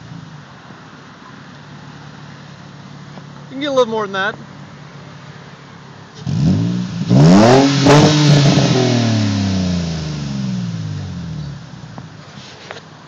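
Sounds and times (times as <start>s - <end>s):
car engine revving: 6.1s - 12.1s.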